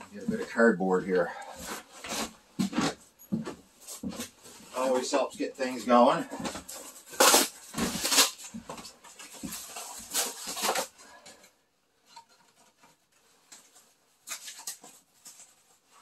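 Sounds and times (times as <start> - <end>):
cardboard rustling and scraping: 0.1 - 11.0.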